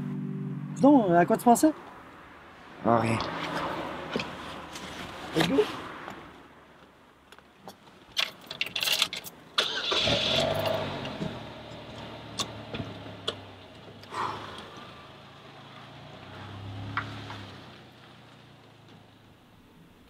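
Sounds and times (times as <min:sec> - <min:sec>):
car engine starting and idling: 0:08.2 - 0:20.0.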